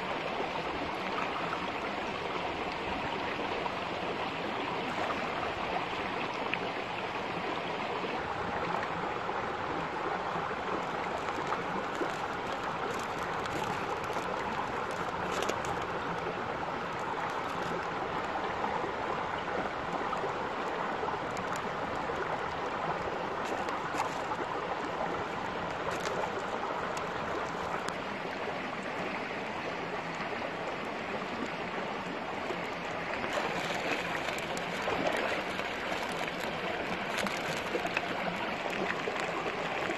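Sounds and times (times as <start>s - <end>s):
rocky stream babbling: 0.0s - 39.9s.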